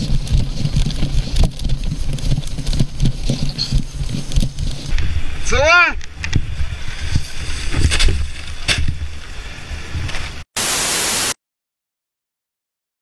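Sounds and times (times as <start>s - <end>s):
static hiss: 9.0s - 11.4s.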